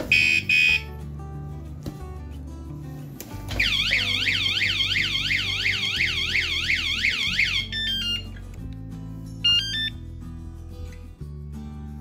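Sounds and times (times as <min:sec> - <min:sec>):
alarm beeping notes: 0:00.1 - 0:00.9
warbling alarm siren: 0:03.6 - 0:08.2.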